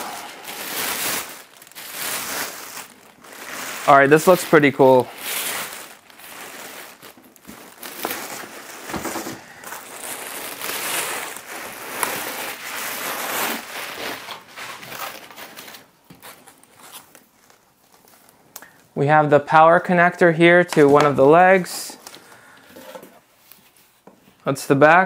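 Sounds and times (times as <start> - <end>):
plastic wrap crinkling: 0.0 - 18.8.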